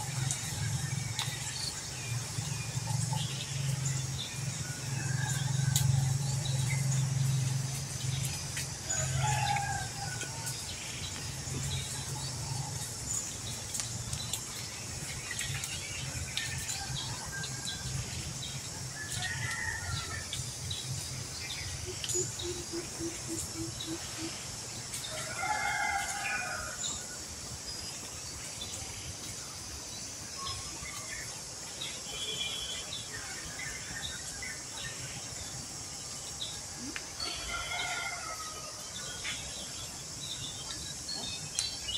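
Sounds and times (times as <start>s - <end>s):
rooster crowing: 37.2s - 38.9s.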